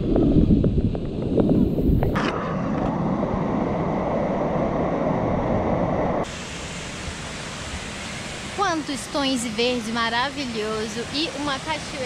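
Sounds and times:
waterfall rushing: 0:06.2 - 0:12.0.

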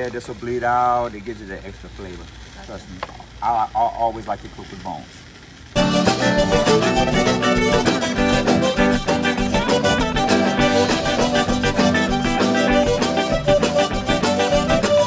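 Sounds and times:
music with steady beat: 0:05.8 - 0:15.0.

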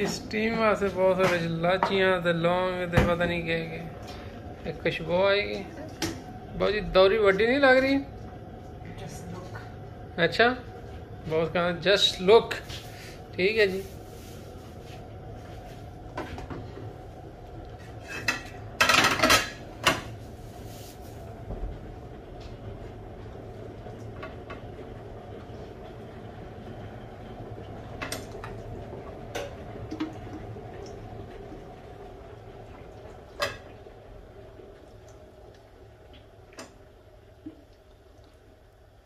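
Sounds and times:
steady low hum: 0:00.0 - 0:39.0
pots and pans clinking: 0:18.0 - 0:20.1.

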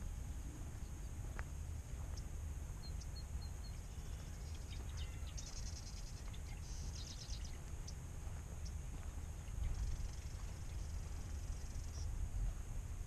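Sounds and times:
steady low rumble: 0:00.0 - 0:13.0
birds chirping and trilling: 0:01.9 - 0:12.2.

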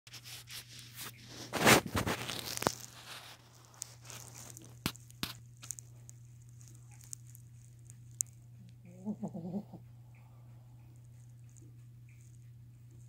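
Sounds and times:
rustling against bedding: 0:00.1 - 0:08.8.

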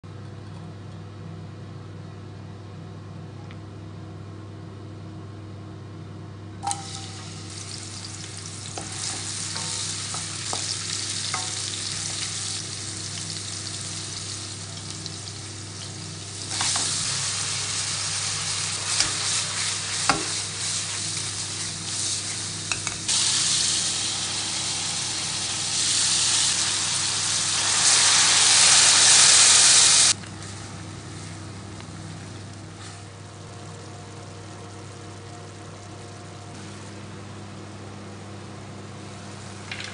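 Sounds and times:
steady low hum: 0:00.1 - 0:39.9
onion sizzling in frying pan: 0:06.6 - 0:36.8.

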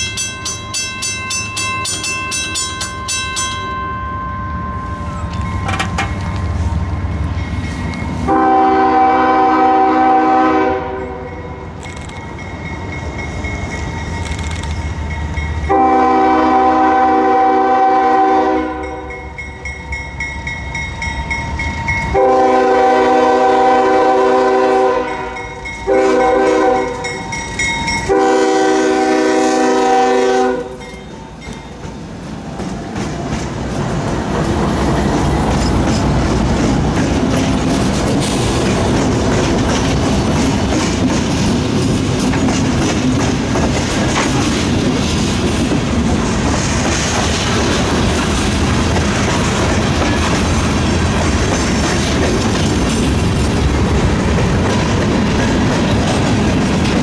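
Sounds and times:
train wheels on rails: 0:00.0 - 0:57.0
locomotive air horn blasts: 0:08.3 - 0:11.4, 0:15.7 - 0:19.1, 0:22.1 - 0:27.2, 0:28.1 - 0:30.8.

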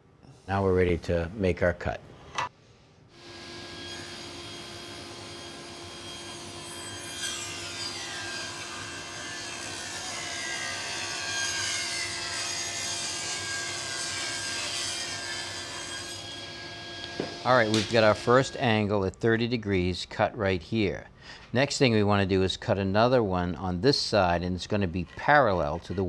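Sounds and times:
saw blade cutting wood: 0:03.2 - 0:18.6
table saw running: 0:03.2 - 0:18.6.

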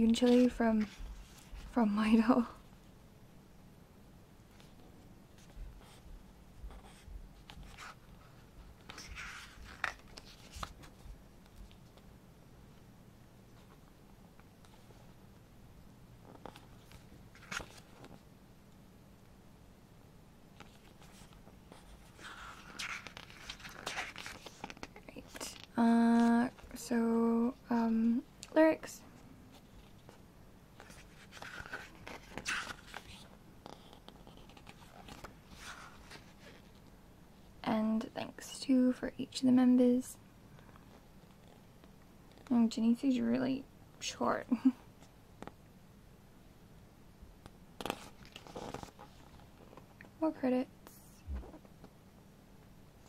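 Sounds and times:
paper rustling: 0:07.4 - 0:11.0, 0:16.3 - 0:18.2, 0:20.6 - 0:26.7, 0:30.8 - 0:36.8.

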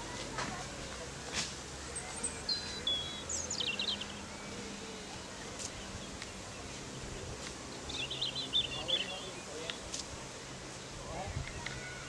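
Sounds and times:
steady background noise: 0:00.0 - 0:12.0.

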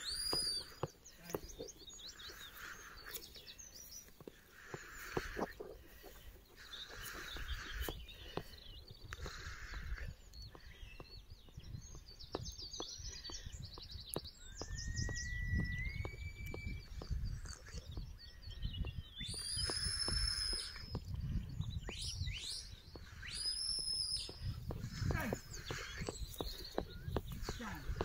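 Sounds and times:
high shepherd's whistles: 0:00.0 - 0:00.8, 0:14.5 - 0:16.9, 0:19.2 - 0:20.9, 0:22.3 - 0:24.4
birdsong chirps: 0:00.0 - 0:28.0
wind rumble on microphone: 0:07.0 - 0:28.0.

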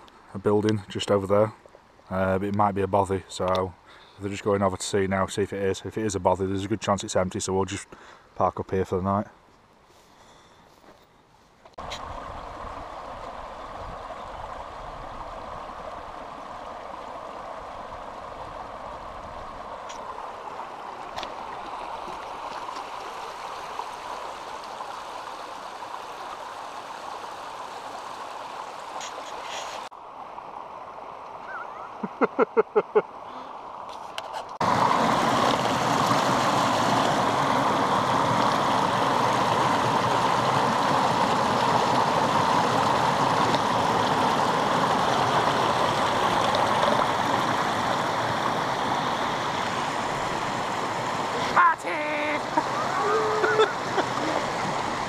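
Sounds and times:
quiet steady hiss: 0:00.0 - 0:18.4
stream rushing and splashing: 0:11.7 - 0:55.0.

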